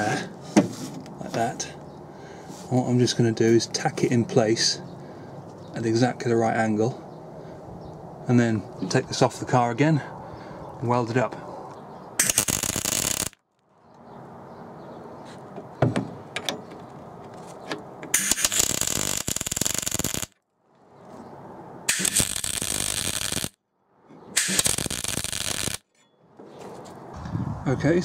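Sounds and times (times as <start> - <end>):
electric arc welding: 12.2 - 13.4, 18.2 - 20.4, 21.9 - 23.6, 24.4 - 25.8
sharp clicks: 12.2 - 13.4, 18.1 - 20.3, 21.9 - 23.5, 24.4 - 25.8.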